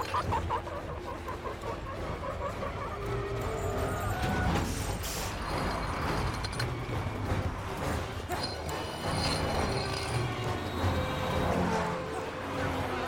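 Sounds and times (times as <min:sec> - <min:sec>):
engine and street noise: 0:00.0 - 0:13.0
tyres screeching: 0:03.4 - 0:12.2.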